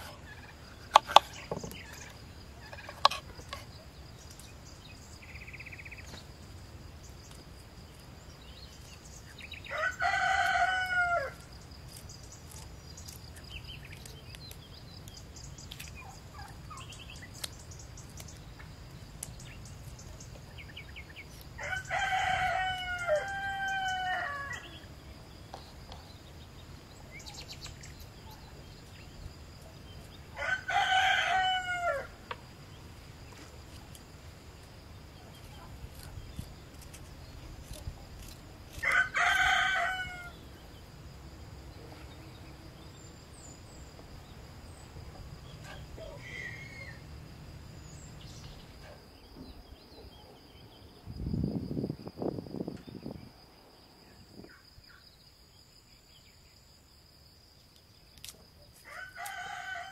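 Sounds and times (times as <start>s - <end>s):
rooster crowing: 9.6s - 11.4s, 21.6s - 24.8s, 30.4s - 32.2s, 38.8s - 40.4s, 58.8s - 59.9s.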